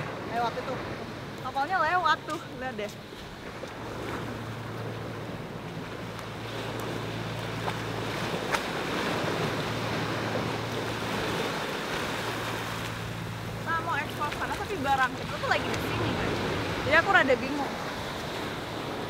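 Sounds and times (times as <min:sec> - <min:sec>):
steady low hum: 0:00.0 - 0:19.0
surf breaking on beach: 0:03.4 - 0:19.0.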